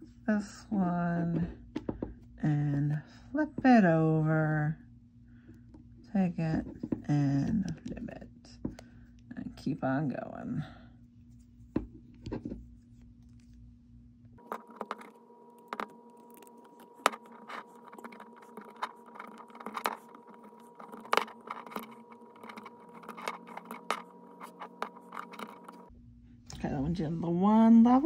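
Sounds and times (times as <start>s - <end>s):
faint steady hum: 0.0s - 28.0s
knitting loom clicks and scrapes: 15.7s - 25.9s.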